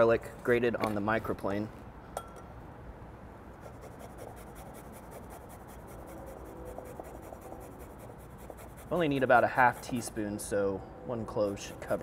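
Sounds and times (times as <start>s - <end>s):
garlic grated on metal rasp: 11.5s - 12.0s.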